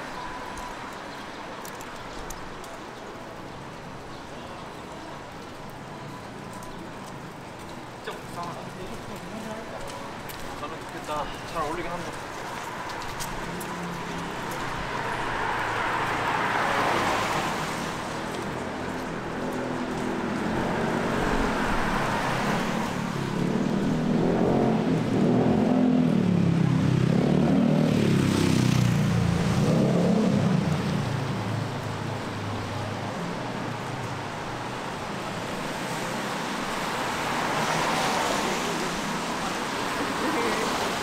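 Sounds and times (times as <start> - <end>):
car engine passing by: 14.9 - 18.8, 20.2 - 33.0, 35.7 - 41.0
tyres hissing on wet pavement: 30.0 - 41.0.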